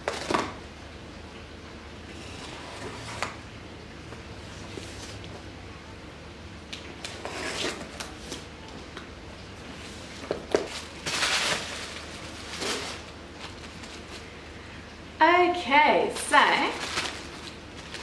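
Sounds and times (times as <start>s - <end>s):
cardboard box scraping and rustling: 10.6s - 14.2s.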